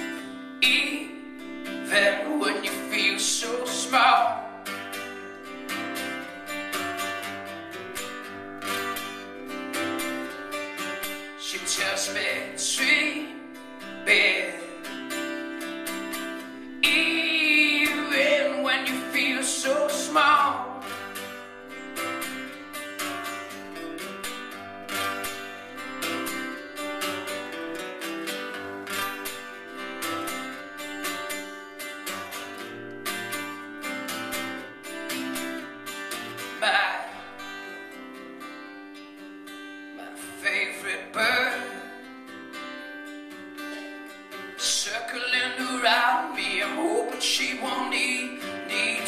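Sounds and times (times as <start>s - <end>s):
man singing: 0.0s - 4.6s, 11.3s - 15.4s, 16.8s - 21.1s, 36.4s - 37.6s, 40.0s - 42.1s, 44.6s - 49.0s
acoustic guitar playing: 0.0s - 49.0s.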